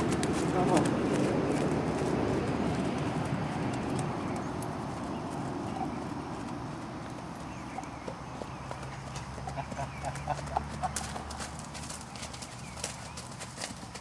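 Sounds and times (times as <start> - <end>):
horse hooves on dirt: 0.0 - 14.0.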